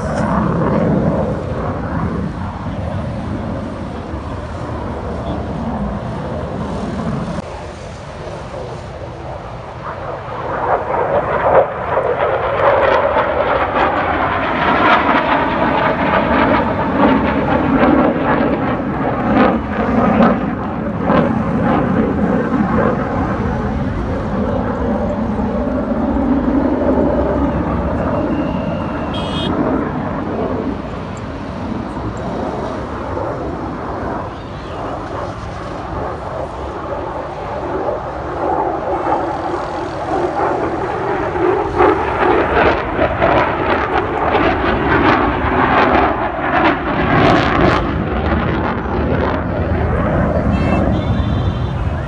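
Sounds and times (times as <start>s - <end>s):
fighter jet rumble with crackles: 0.0s - 52.0s.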